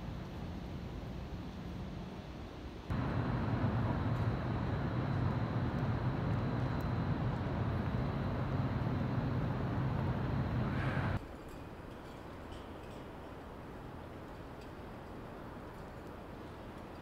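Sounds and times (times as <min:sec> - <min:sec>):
city street rumble: 0:00.0 - 0:11.2
faint high whine: 0:02.9 - 0:11.2.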